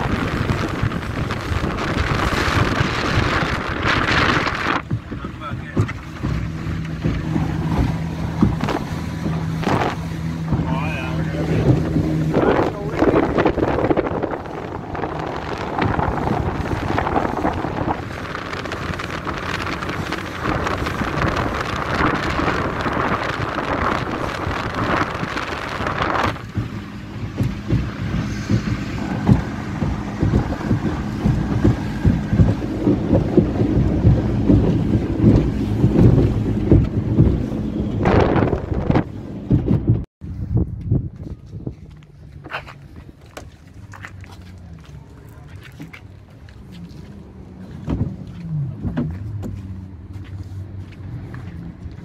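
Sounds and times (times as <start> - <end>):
rushing water and spray: 0.0 - 40.0
irregular thumps: 0.0 - 40.1
low boat engine drone: 0.0 - 52.0
wind buffeting microphone: 0.0 - 52.0.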